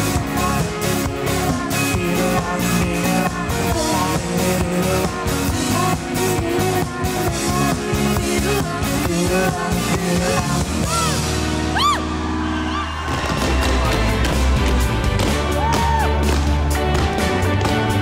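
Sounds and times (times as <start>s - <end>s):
person singing: 0.0s - 11.3s
driving drum beat: 0.0s - 12.0s, 13.0s - 18.0s
rock band playing: 0.0s - 18.0s.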